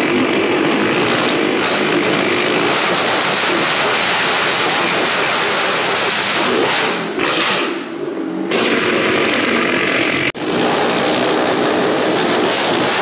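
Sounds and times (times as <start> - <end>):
motorcycle and car engines roaring: 0.0 - 13.0.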